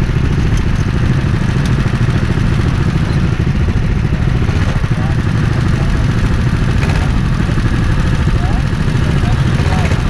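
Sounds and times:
go-kart engine idling: 0.0s - 10.0s
other kart engines running: 0.0s - 10.0s.

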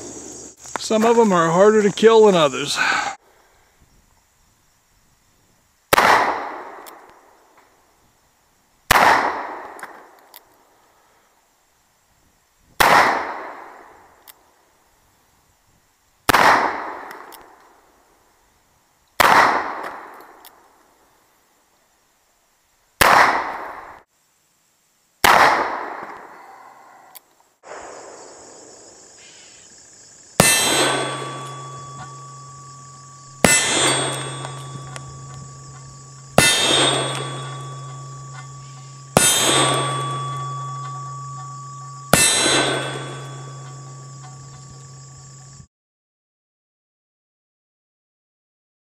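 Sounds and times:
revolver shots: 30.4s - 43.9s.

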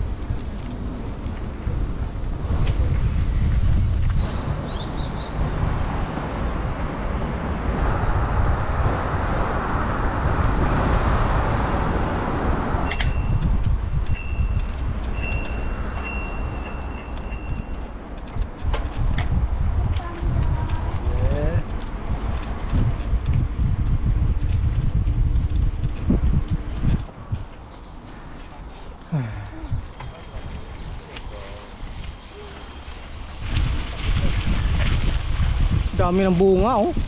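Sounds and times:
bicycle tyre rumble: 0.0s - 37.0s
wind buffeting microphone: 0.0s - 37.0s
bicycle bell ringing: 12.8s - 18.2s, 30.0s - 33.2s.

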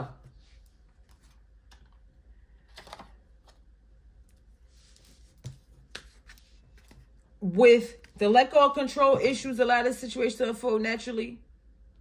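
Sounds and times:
cards rustling: 2.6s - 7.2s.

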